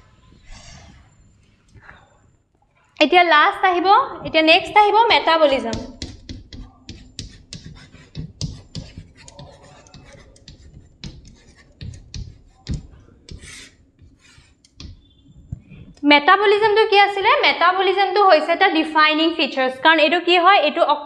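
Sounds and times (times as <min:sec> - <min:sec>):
pen scratching on writing surface: 0:04.8 - 0:16.0.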